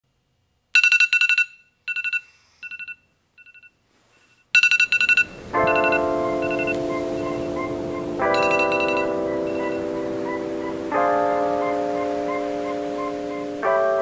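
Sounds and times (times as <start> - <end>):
phone alarm rapid high beeps: 0.8 - 3.7, 4.6 - 7.4, 8.4 - 9.9
soft music chords: 5.2 - 14.0.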